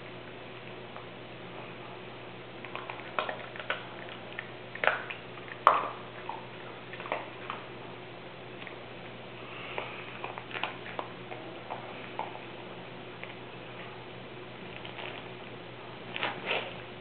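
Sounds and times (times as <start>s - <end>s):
dog chewing a treat: 2.6s - 7.8s, 8.5s - 14.0s, 14.6s - 16.8s.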